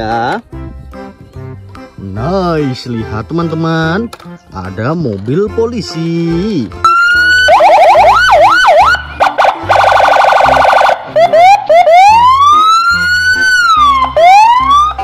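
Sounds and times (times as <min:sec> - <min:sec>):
police siren yelping and wailing: 0:06.8 - 0:15.0.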